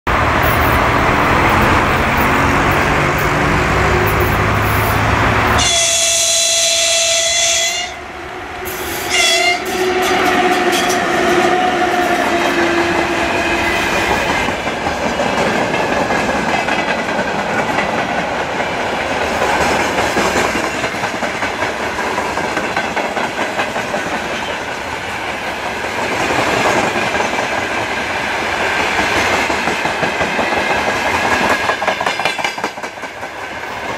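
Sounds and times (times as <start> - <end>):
freight train passing: 0.1 - 33.9
locomotive horn: 1.8 - 14.0
wheels clacking over rail joints: 10.0 - 33.9.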